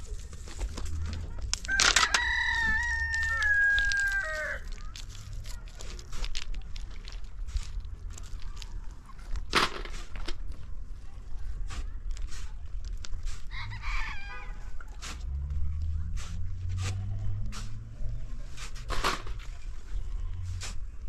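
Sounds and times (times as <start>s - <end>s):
shovels scraping sand: 0.0s - 21.0s
rooster crowing: 1.7s - 4.6s.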